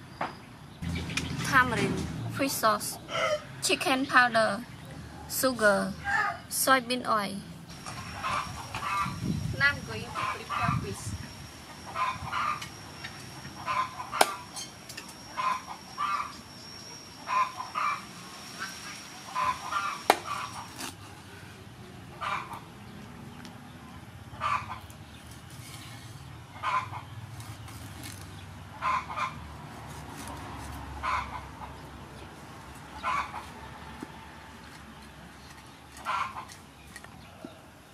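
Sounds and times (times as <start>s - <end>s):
chickens clucking: 2.5s - 3.6s, 7.8s - 9.2s, 10.1s - 11.1s, 11.7s - 14.6s, 15.2s - 16.4s, 17.2s - 20.8s, 22.1s - 27.7s, 28.6s - 29.5s, 30.9s - 34.2s, 35.0s - 37.7s
thin high whine: 6.6s - 21.6s.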